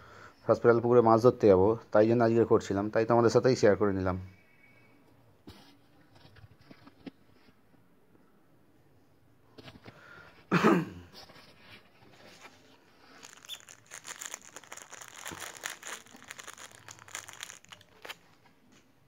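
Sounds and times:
plastic bags crinkling: 13.0 - 18.5.

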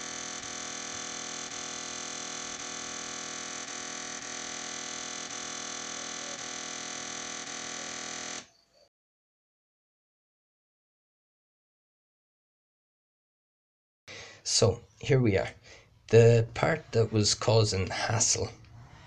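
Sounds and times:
floppy disk drive buzzing: 0.0 - 8.5.

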